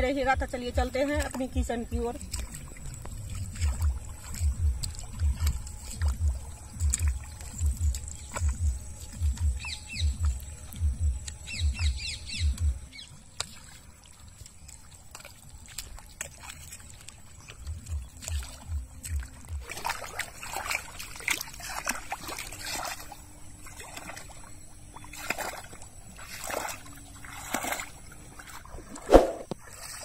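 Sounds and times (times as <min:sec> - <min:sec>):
feet splashing in water: 0:00.0 - 0:30.0
bare feet squelching in mud: 0:00.1 - 0:30.0
bird chirps: 0:07.4 - 0:13.2.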